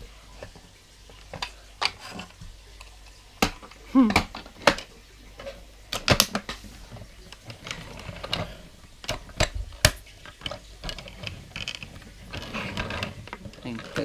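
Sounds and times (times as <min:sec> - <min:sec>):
toy bumping tabletop: 0:03.4 - 0:06.6.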